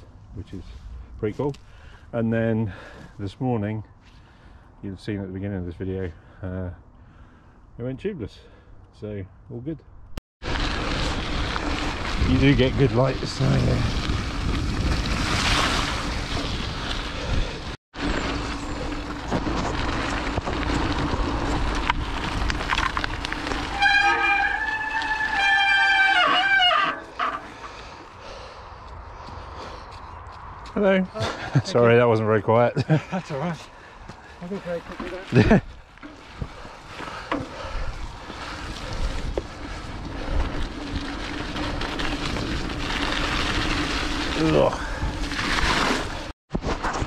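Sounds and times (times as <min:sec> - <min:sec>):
wind: 0:00.0 - 0:47.0
bike tyres on wet trail: 0:02.7 - 0:03.2, 0:10.4 - 0:30.2, 0:32.8 - 0:47.0
wind buffeting microphone: 0:10.5 - 0:17.8
brake squeal: 0:18.0 - 0:28.0.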